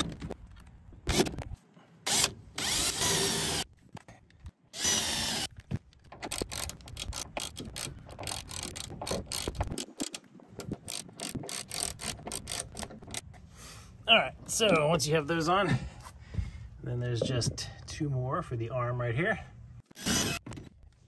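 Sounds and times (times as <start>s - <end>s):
cordless drill driving screw: 2.1s - 3.6s, 4.8s - 5.5s
hand ratchet clicking: 6.2s - 13.2s.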